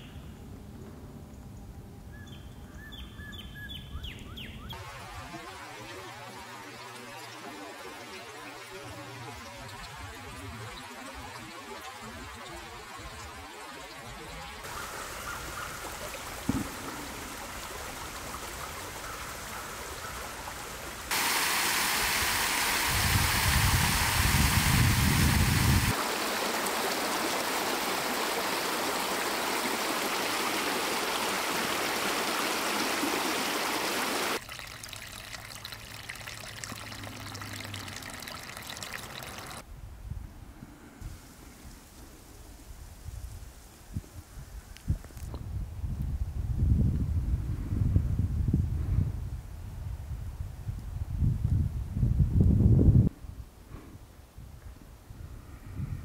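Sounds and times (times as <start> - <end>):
stream water rushing over cascade: 4.8 - 39.6.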